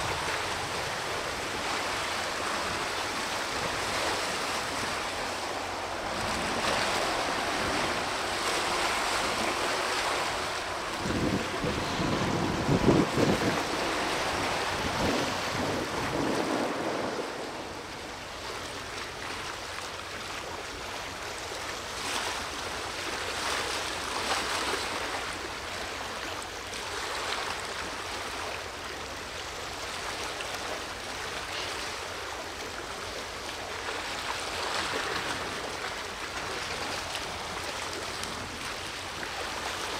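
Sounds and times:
wind rumbling on microphone: 0.0 - 19.4
waves breaking on shore: 0.0 - 39.9.

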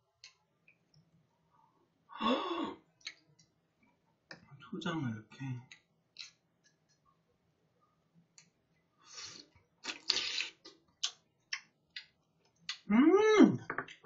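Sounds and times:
wet slurp: 9.1 - 11.2
wet chewing clicks: 9.8 - 12.9.

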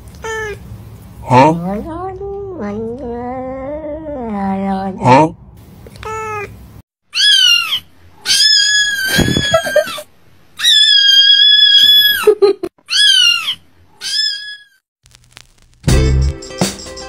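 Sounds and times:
kitten meowing: 7.2 - 10.0, 10.6 - 12.2, 12.9 - 14.6.

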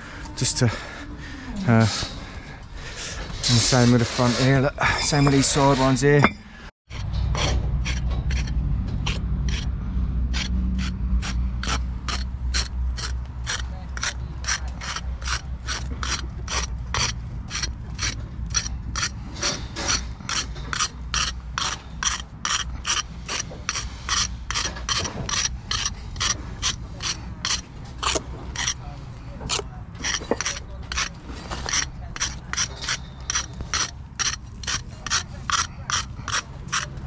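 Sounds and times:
steady low rumble: 6.2 - 37.0
brick jointer scraping mortar: 6.9 - 9.7, 10.3 - 37.0.

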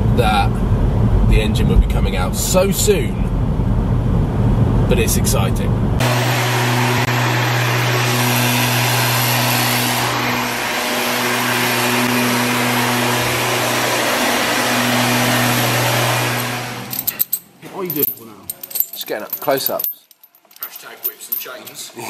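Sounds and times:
machine drone with low hum and hiss: 0.0 - 7.2.

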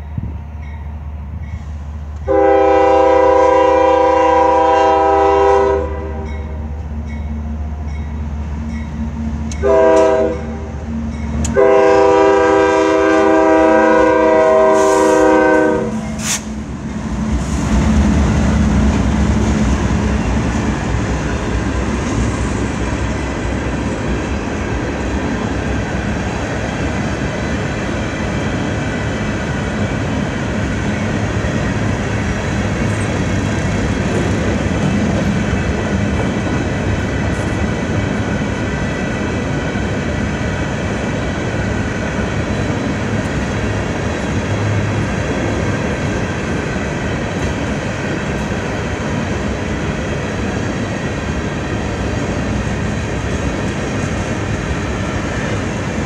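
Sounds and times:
locomotive horn blasts: 2.2 - 6.4, 9.5 - 10.8, 11.4 - 16.3
freight cars rolling on rails: 6.2 - 56.0
locomotive engine running: 16.4 - 56.0.

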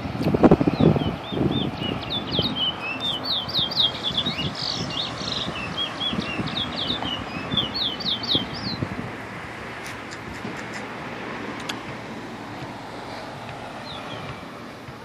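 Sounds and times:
cars passing rumble: 0.0 - 15.0
songbird singing whistled notes: 0.7 - 8.9, 13.8 - 14.6.

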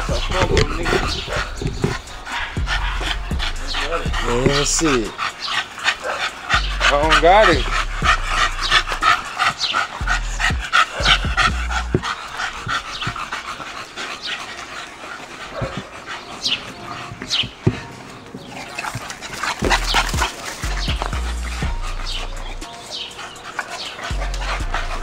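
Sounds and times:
dog panting: 0.0 - 25.0.

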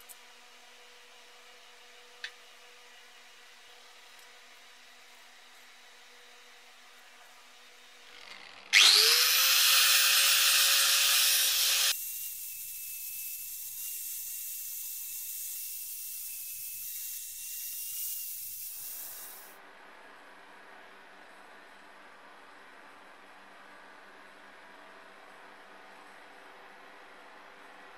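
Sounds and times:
angle grinder grinding steel: 8.1 - 19.6.

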